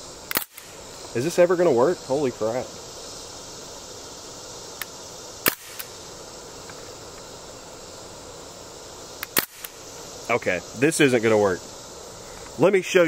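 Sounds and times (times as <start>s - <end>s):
outdoor background hiss: 0.0s - 13.0s
bb gun firing pop: 5.4s - 5.9s
gun click: 9.2s - 9.8s.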